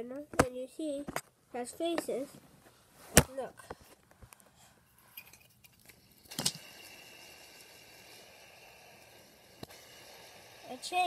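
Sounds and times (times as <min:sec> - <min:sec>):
fidget spinner bearing whir: 0:05.1 - 0:11.0
fidget spinner clicks: 0:05.6 - 0:11.0.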